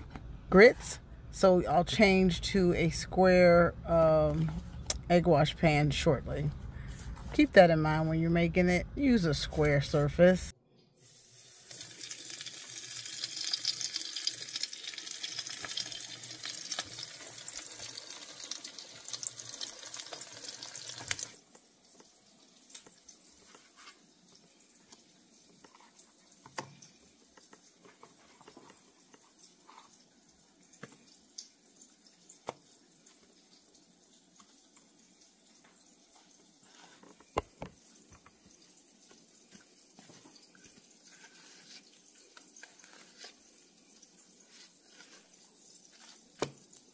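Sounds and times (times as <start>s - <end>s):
food sizzling in hot oil: 11.0s - 21.4s.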